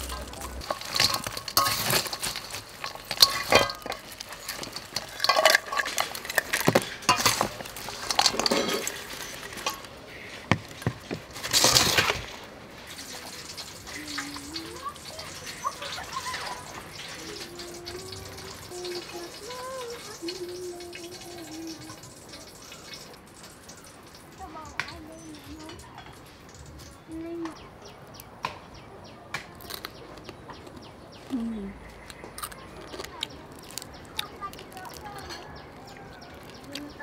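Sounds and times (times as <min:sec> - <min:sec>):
metal spoon scraping steel bowl: 0:00.0 - 0:10.8.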